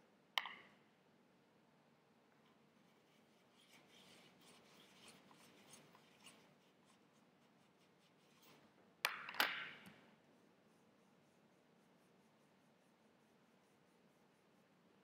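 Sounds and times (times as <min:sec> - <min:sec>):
paintbrush scrubbing palette: 0:02.5 - 0:08.8.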